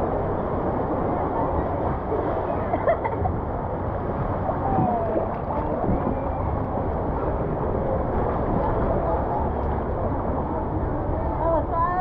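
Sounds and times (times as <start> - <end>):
water splashing and churning: 0.0 - 12.0
water sloshing around a tube: 1.6 - 10.5.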